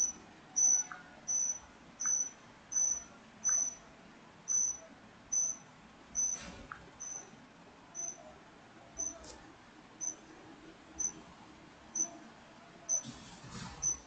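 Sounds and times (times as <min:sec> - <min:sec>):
cricket chirping: 0:00.0 - 0:03.8, 0:04.5 - 0:05.6, 0:06.2 - 0:06.4, 0:07.0 - 0:07.3, 0:08.0 - 0:08.2, 0:09.0 - 0:09.2, 0:10.0 - 0:10.2, 0:12.0 - 0:12.2.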